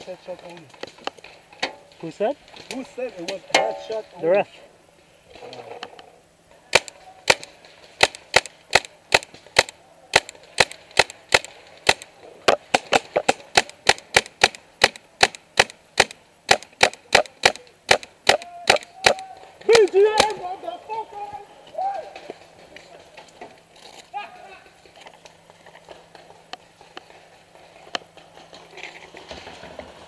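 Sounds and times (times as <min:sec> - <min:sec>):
paintball marker firing pops: 0:06.7 - 0:19.2.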